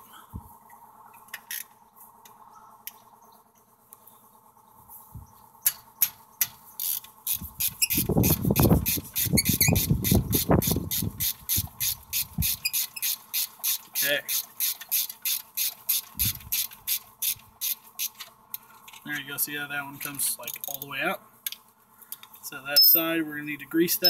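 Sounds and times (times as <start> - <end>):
hand ratchet clicking: 6.8 - 18.2.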